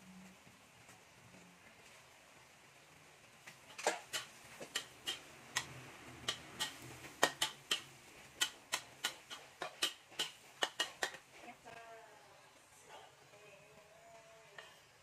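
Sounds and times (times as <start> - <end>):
spatula scraping a wok: 3.7 - 11.6, 14.4 - 15.0.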